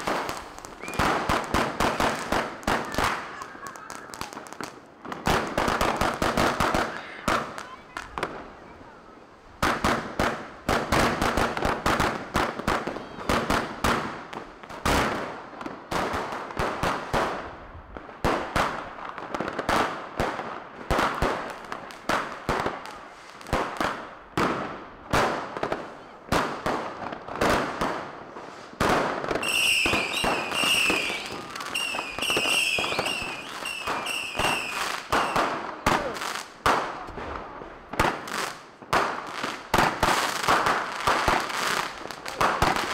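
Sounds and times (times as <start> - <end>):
fireworks banging: 0.0 - 42.9
high falling whistles: 0.7 - 1.1, 29.4 - 34.8.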